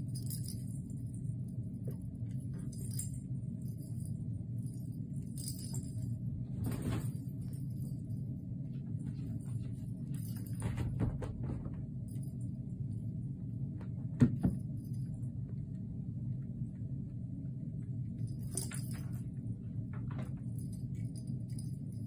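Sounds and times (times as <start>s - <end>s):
small bell jingling: 0.0s - 1.6s, 2.5s - 6.3s, 18.1s - 19.3s, 20.4s - 22.0s
steady low hum: 0.0s - 22.0s.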